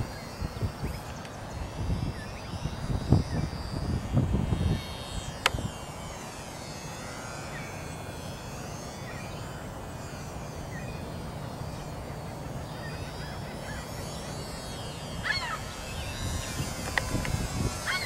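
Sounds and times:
model plane motor whining: 0.0 - 18.0
wavering bird call: 11.7 - 18.0.

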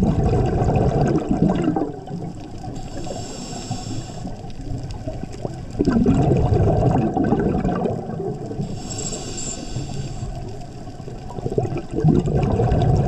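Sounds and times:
exhaled bubbles gurgling: 0.0 - 13.0
regulator inhale hiss: 2.7 - 4.6, 8.5 - 10.7.

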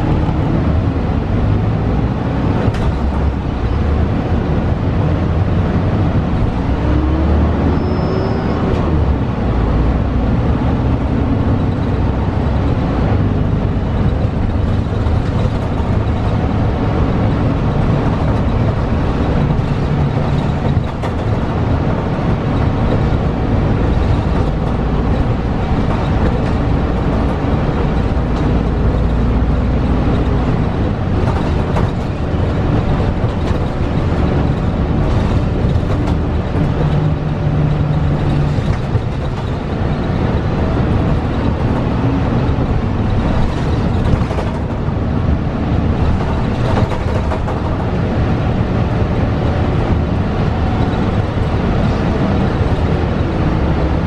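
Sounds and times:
bus engine and road rumble: 0.0 - 54.0
knocks and rattles: 12.6 - 49.2.

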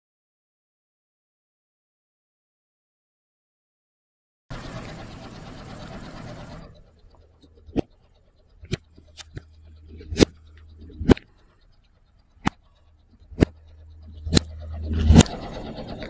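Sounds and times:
car engine idling: 4.5 - 16.0.

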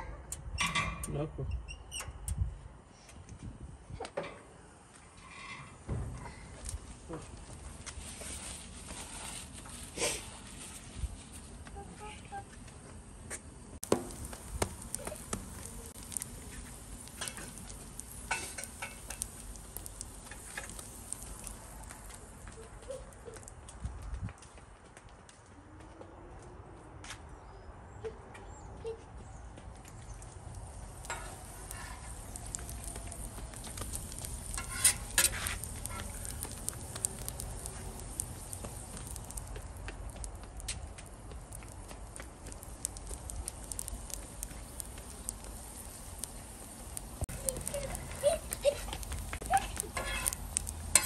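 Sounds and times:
faint sizzle on griddle: 4.2 - 23.8, 29.8 - 51.0
metal spatula scraping griddle: 5.1 - 5.8, 34.2 - 36.2, 49.7 - 51.0.

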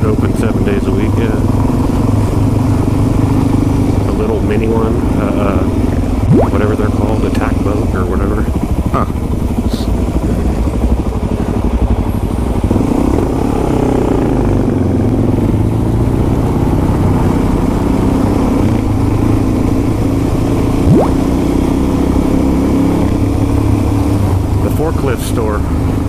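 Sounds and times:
motorcycle engine running: 0.0 - 26.0
sharp rising whine: 6.1 - 7.1, 20.6 - 21.9.

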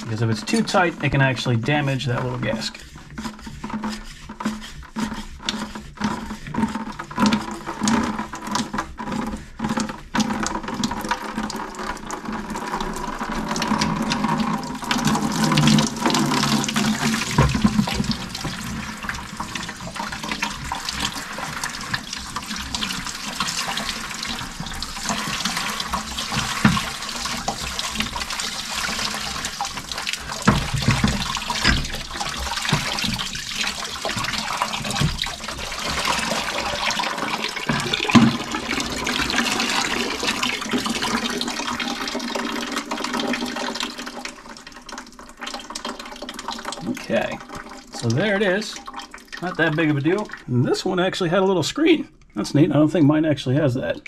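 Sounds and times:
water pouring into plastic bucket: 0.0 - 52.8.

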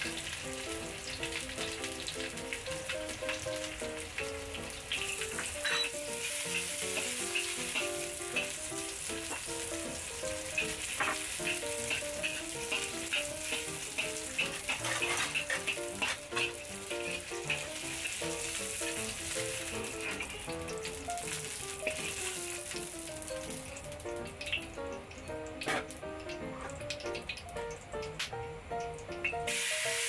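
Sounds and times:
food sizzling in hot oil: 0.0 - 30.0
light background music: 0.0 - 30.0
metal spatula scraping a wok: 5.6 - 7.8, 10.6 - 18.2, 25.7 - 25.9.

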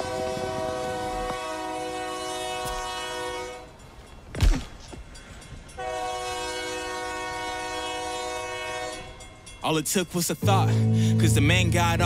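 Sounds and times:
train horn chord: 0.0 - 3.7, 5.8 - 9.3, 10.4 - 12.0
song instrumental: 10.4 - 12.0.

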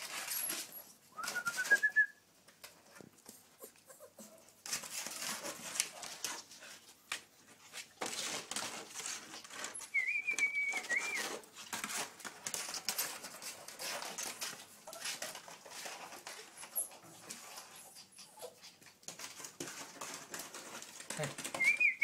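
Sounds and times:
rustling and scuffling: 0.0 - 22.0
puppies whining: 9.4 - 11.5, 14.2 - 19.0.

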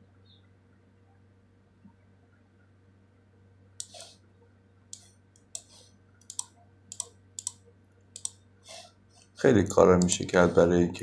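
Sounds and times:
faint low hum: 0.0 - 11.0
computer mouse clicking: 3.8 - 4.2, 4.9 - 7.6, 8.2 - 8.4, 10.0 - 10.3.

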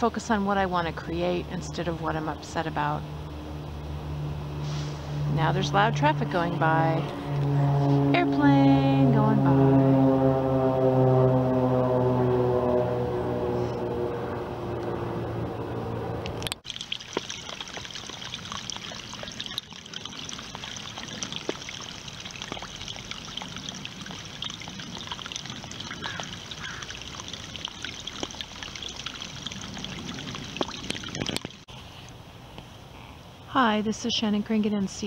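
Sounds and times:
water trickling over stone: 16.3 - 31.7.

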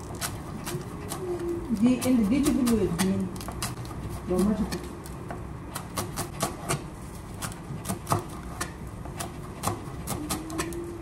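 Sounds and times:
knife chopping on cutting board: 1.9 - 10.7.

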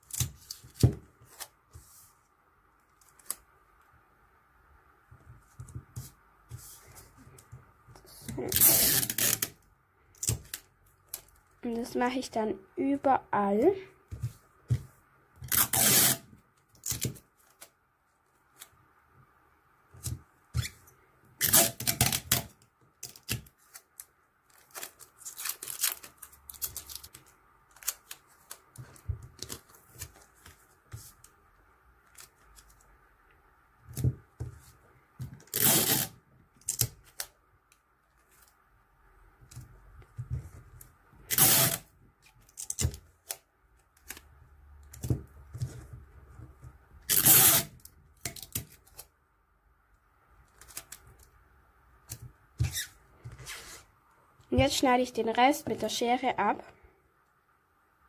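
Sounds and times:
adhesive tape ripping: 8.5 - 9.6, 15.4 - 17.1, 21.4 - 23.9, 24.5 - 28.6, 35.5 - 37.3, 41.3 - 43.4, 47.1 - 49.0.

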